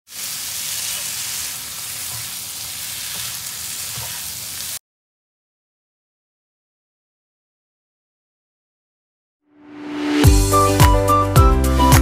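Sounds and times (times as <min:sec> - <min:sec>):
chicken sizzling in a frying pan: 0:00.1 - 0:04.8.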